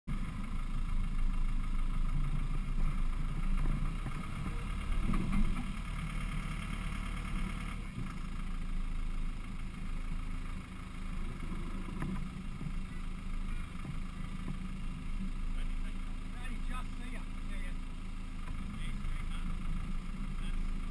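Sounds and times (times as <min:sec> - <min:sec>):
truck engine running low: 0:00.1 - 0:20.9.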